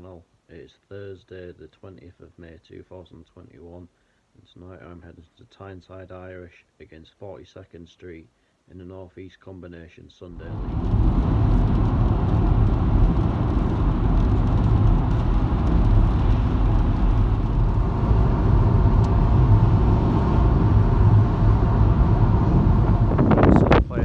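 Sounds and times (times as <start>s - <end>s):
car engine and tyres on wet road: 10.4s - 23.8s.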